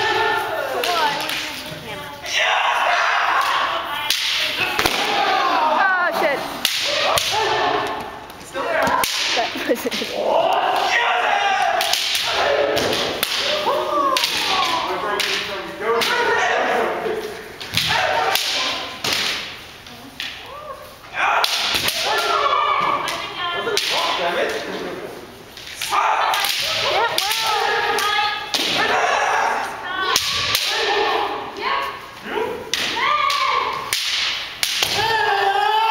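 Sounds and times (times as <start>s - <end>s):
people shouting: 0.0s - 1.3s, 2.2s - 17.0s, 17.7s - 19.0s, 20.4s - 24.2s, 25.8s - 35.9s
bamboo swords clacking: 3.0s - 5.6s, 6.5s - 16.4s, 17.6s - 19.6s, 21.4s - 24.6s, 25.6s - 29.0s, 30.1s - 31.1s, 32.7s - 35.3s.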